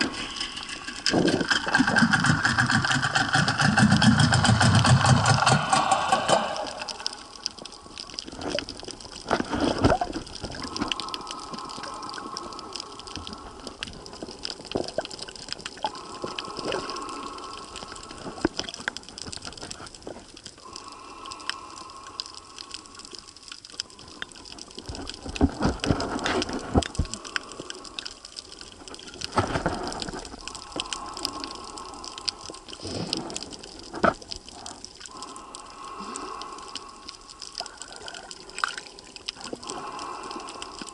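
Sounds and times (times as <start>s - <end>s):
clicks and gushes underwater: 0.0s - 40.9s
water sloshing underwater: 0.0s - 40.9s.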